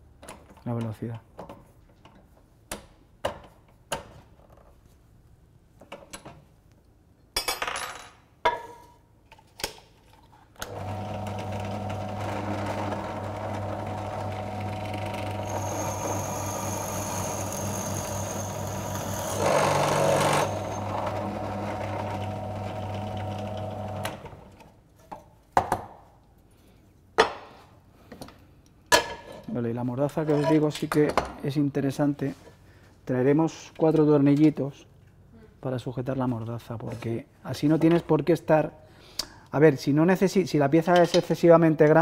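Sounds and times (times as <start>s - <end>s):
drill press motor running: 10.6s - 24.3s
drill bit boring into chipboard: 10.7s - 24.1s.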